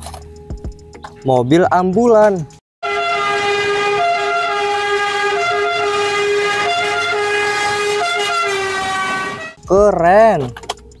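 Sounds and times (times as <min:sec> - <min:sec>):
ambulance siren: 0:02.8 - 0:09.6.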